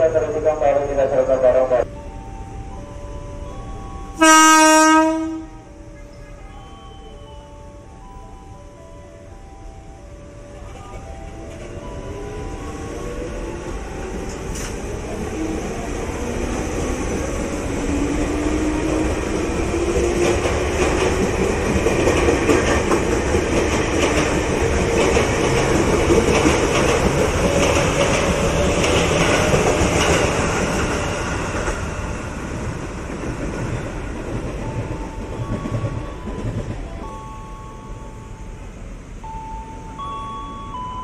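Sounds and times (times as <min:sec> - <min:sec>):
train rumble: 0:00.0 - 0:41.0
wheels clicking over rail joints: 0:13.6 - 0:32.0.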